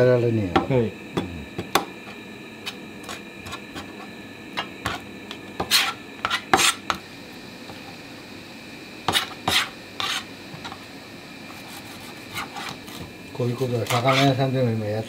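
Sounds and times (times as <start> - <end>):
knife scraping cutting board: 2.0 - 7.0, 9.1 - 10.8, 11.5 - 14.4.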